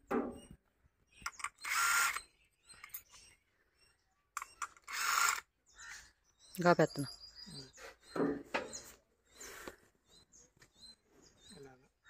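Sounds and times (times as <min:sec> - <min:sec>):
cordless drill motor whining: 0:01.4 - 0:02.3, 0:04.6 - 0:05.5.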